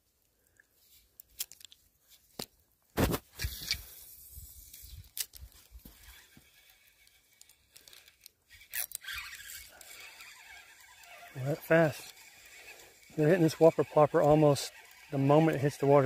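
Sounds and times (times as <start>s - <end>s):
fishing reel clicks: 4.6s - 16.0s
fishing line hissing out: 8.5s - 15.3s.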